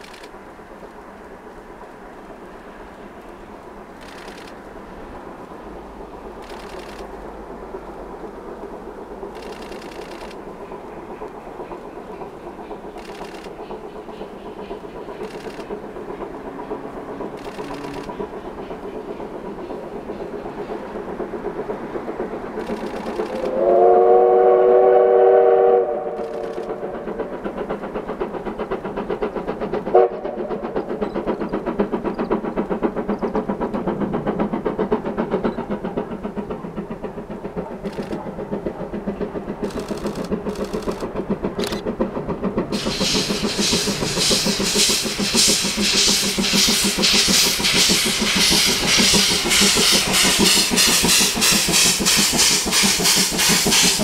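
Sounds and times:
hiss of steam: 0:00.0 - 0:54.0
rhythmic locomotive exhaust beat: 0:00.0 - 0:54.0
steam locomotive whistle: 0:23.3 - 0:27.1, 0:29.9 - 0:30.6.

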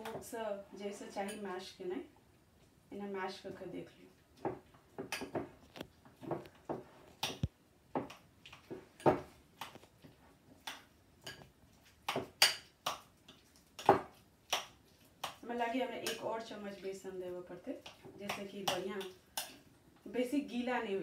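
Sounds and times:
mashing clicks against glass bowl: 0:12.1 - 0:13.1.

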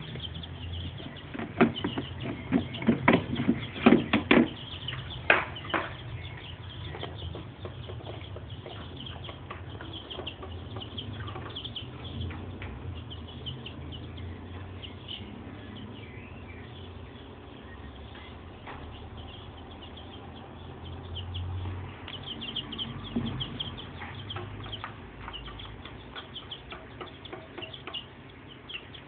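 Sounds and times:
cage and container clattering: 0:00.2 - 0:13.1.

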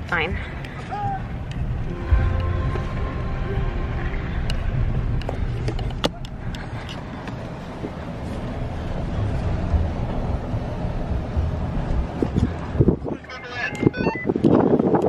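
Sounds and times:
engine and tyre rumble: 0:00.0 - 0:15.0.

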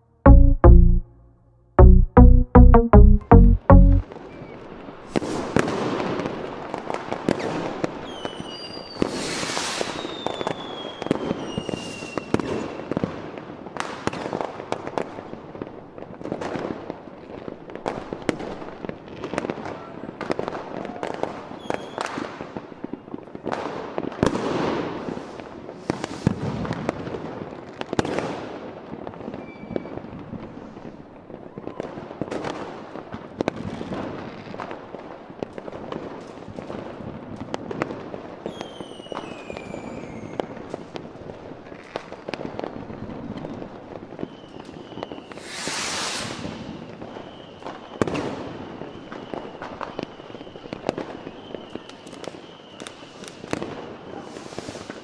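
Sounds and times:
fireworks bangs and crackles: 0:04.4 - 0:55.0
firework whistles: 0:07.4 - 0:12.5, 0:25.1 - 0:26.6, 0:38.5 - 0:40.6, 0:43.4 - 0:55.0.

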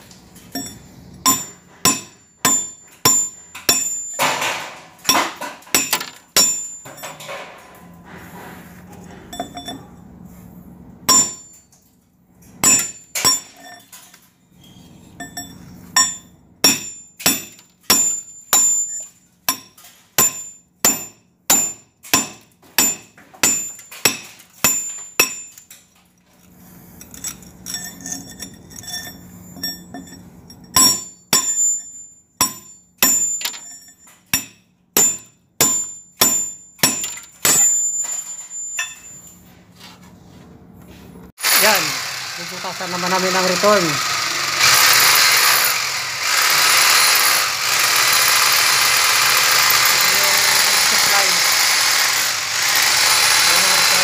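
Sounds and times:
hammer striking steel chisel: 0:00.5 - 0:07.4, 0:11.1 - 0:11.6, 0:12.6 - 0:13.9, 0:15.2 - 0:25.8, 0:27.0 - 0:39.2.

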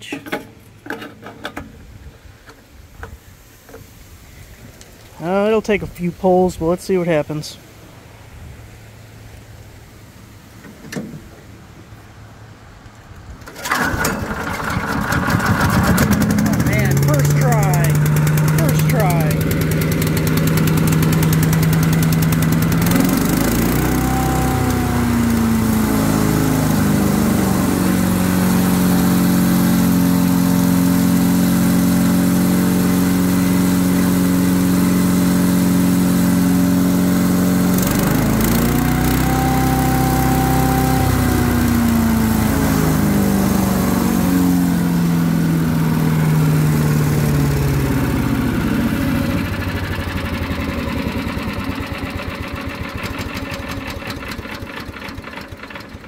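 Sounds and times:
small engine running: 0:13.5 - 0:56.0.

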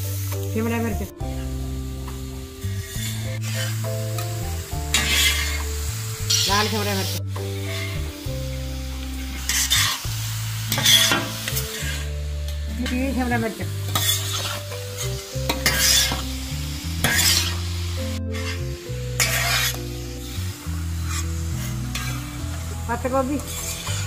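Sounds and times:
vegetables sizzling: 0:00.0 - 0:24.0
metal spatula scraping griddle: 0:02.7 - 0:05.7, 0:09.3 - 0:10.0, 0:10.7 - 0:12.1, 0:13.9 - 0:16.3, 0:17.0 - 0:17.6, 0:18.2 - 0:22.5, 0:23.4 - 0:24.0.

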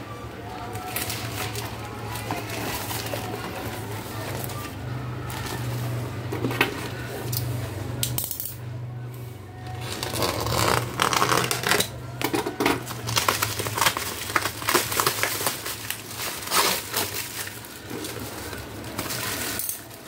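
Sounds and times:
plastic crinkling and tearing: 0:00.6 - 0:06.0, 0:09.7 - 0:20.0
utility knife slicing plastic: 0:09.9 - 0:12.0.

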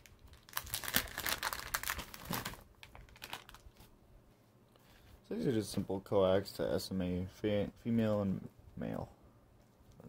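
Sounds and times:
plastic packet crinkling: 0:00.0 - 0:03.9.

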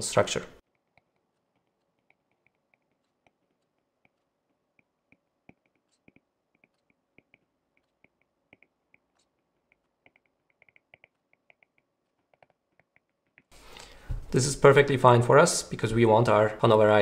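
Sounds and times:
stylus tapping a tablet screen: 0:01.0 - 0:13.5.

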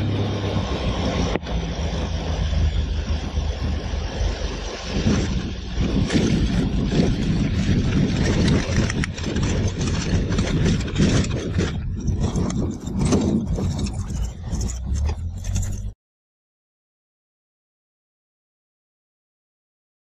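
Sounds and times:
rushing wind: 0:00.0 - 0:16.0.

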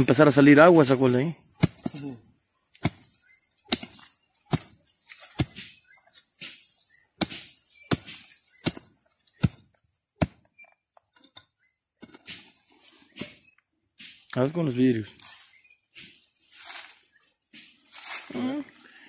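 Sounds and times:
crickets chirring: 0:00.0 - 0:10.8, 0:13.1 - 0:19.0
metal digger chopping into soil: 0:01.6 - 0:02.0, 0:02.8 - 0:03.1, 0:03.7 - 0:05.8, 0:07.2 - 0:09.6, 0:10.2 - 0:10.6.

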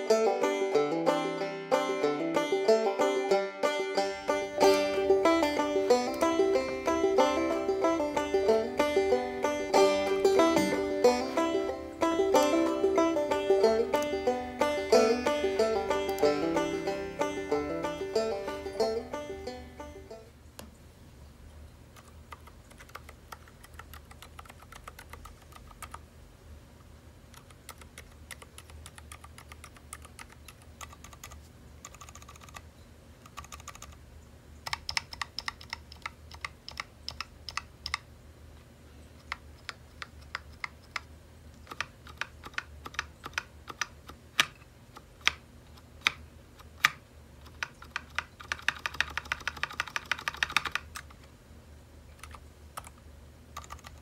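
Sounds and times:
damped mechanical keyboard typing: 0:21.9 - 0:26.1, 0:27.3 - 0:34.0, 0:34.6 - 0:38.1, 0:39.2 - 0:51.2, 0:52.1 - 0:54.0.

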